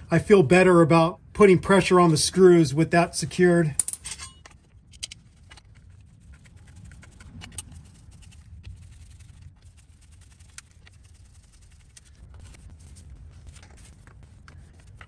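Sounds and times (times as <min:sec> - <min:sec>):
low steady hum: 0:00.0 - 0:15.0
hand tool clicks and scraping: 0:03.3 - 0:08.4.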